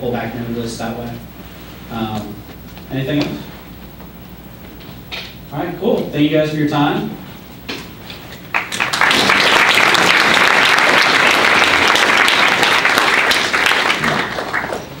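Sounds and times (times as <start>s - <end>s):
audience applauding: 8.4s - 15.0s.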